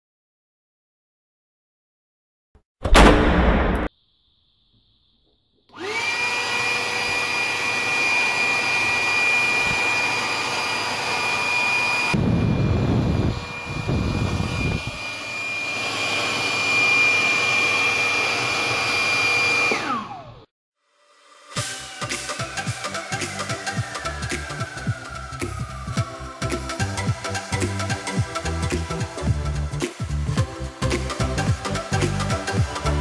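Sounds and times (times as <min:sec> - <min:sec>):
electric fan motor whining: 0:05.8 - 0:20.4.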